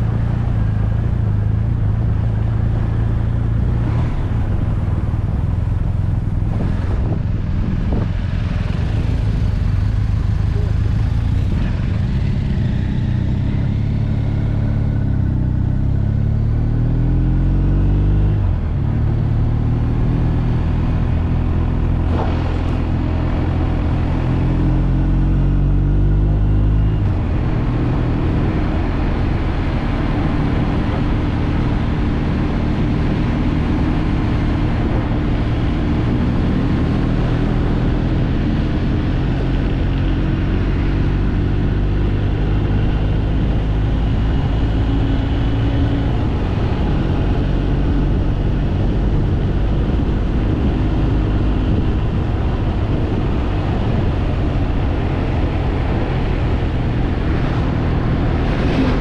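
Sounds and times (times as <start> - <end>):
motorcycle engine running: 4.5 - 16.6
steady rushing noise: 18.4 - 25.1, 40.6 - 59.0.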